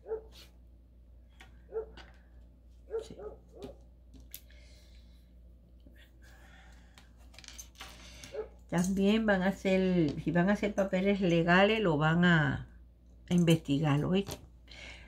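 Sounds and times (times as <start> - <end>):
dog barking: 0.0 - 0.5, 1.7 - 2.0, 2.9 - 3.8, 8.3 - 8.6.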